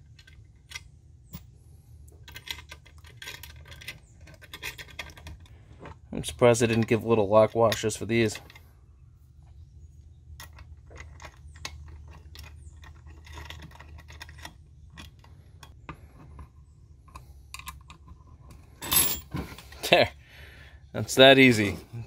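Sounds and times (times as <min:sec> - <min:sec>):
faint low hum: 0:00.0 - 0:22.0
metal screws clicking and clinking: 0:02.2 - 0:05.9, 0:10.4 - 0:15.8.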